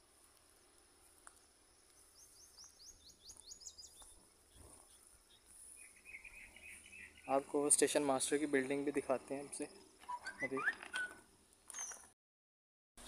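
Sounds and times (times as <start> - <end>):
background hiss: 0.0 - 10.1
high falling bird chirps: 1.8 - 7.7, 9.7 - 12.0
rapid bird trill: 2.1 - 7.5, 9.8 - 11.2.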